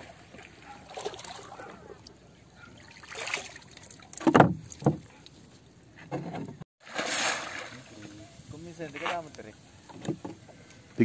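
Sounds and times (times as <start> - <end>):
water lapping around boat: 0.0 - 8.1.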